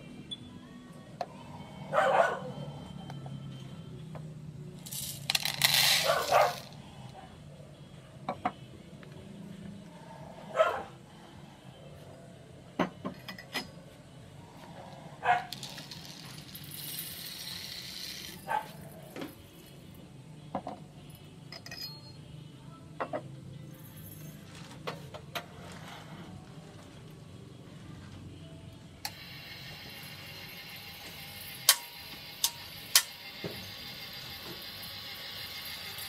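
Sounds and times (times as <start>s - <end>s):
beans pouring through metal funnel: 4.9s - 6.7s, 15.5s - 18.5s
coffee beans pouring into plastic jug: 4.9s - 6.7s, 15.5s - 18.4s.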